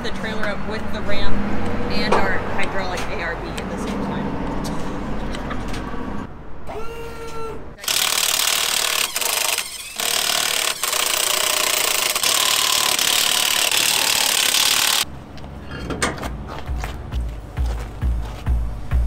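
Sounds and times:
impact wrench hammering: 0:07.8 - 0:15.1
impact wrench whirring: 0:07.8 - 0:15.1.

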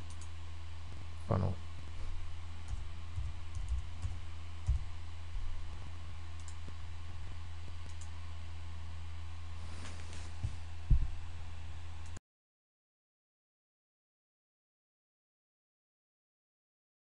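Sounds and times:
computer mouse clicks: 0:00.0 - 0:00.3, 0:02.6 - 0:04.8, 0:06.3 - 0:06.8, 0:07.7 - 0:08.2
low electrical hum: 0:00.0 - 0:12.2.

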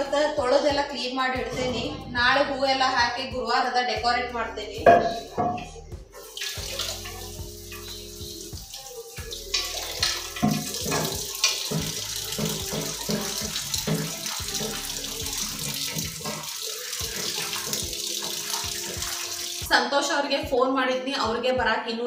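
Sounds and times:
tap water running into sink: 0:04.9 - 0:19.7
bowl clattering against sink: 0:09.5 - 0:14.9.

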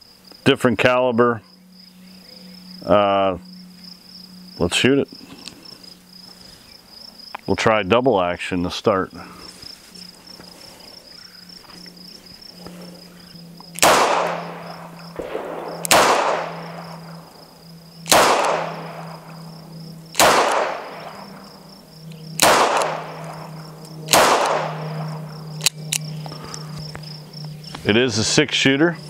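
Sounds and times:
crickets chirping: 0:00.0 - 0:29.0
revolver shots with echo: 0:13.8 - 0:16.8, 0:18.1 - 0:19.0, 0:20.2 - 0:21.2, 0:22.4 - 0:23.1, 0:24.1 - 0:24.9.

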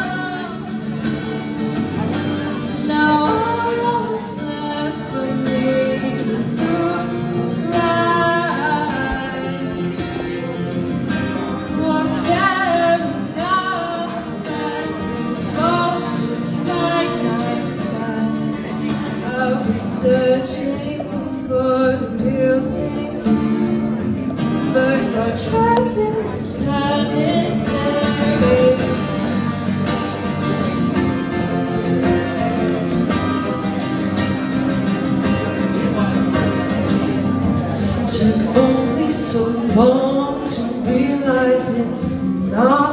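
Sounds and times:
woman singing: 0:00.0 - 0:01.1, 0:02.6 - 0:10.3, 0:11.3 - 0:23.7, 0:24.6 - 0:29.4, 0:38.0 - 0:42.9
acoustic guitar: 0:00.0 - 0:42.9.

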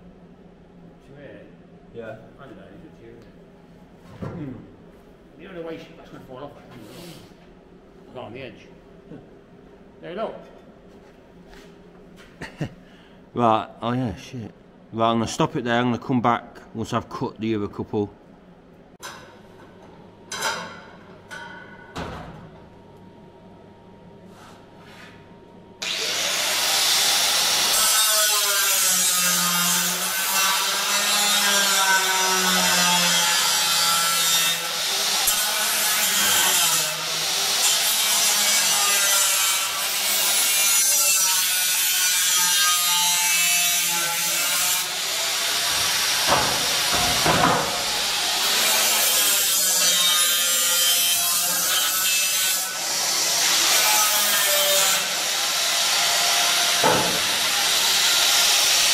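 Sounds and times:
angle grinder cutting steel: 0:25.8 - 0:58.9.

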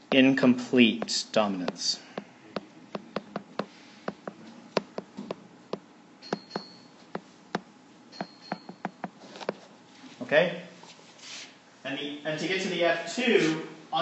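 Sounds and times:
stylus tapping on tablet screen: 0:01.0 - 0:09.6.

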